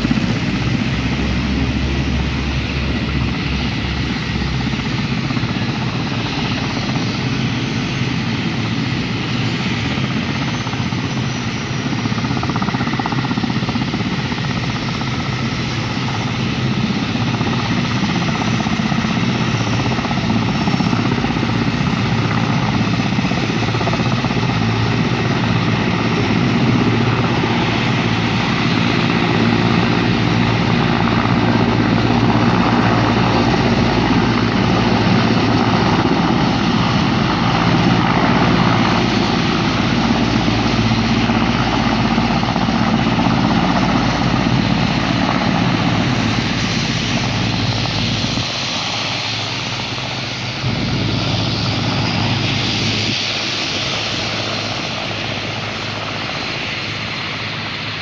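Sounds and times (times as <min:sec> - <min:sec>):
helicopter rotor and turbine noise: 0:00.0 - 0:58.0.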